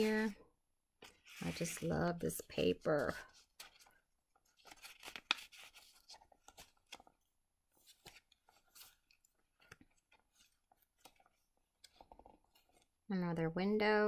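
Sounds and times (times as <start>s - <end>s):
paper pages rustling: 1.0s - 13.0s.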